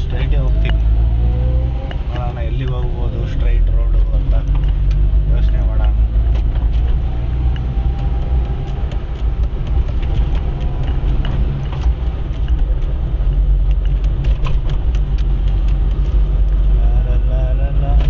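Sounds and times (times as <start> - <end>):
engine and tyre rumble: 0.0 - 18.0
light ticks and rattles: 3.6 - 16.6.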